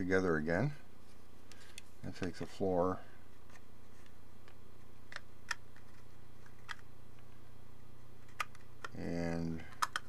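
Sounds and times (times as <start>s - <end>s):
plastic model parts clicking: 9.7s - 10.0s.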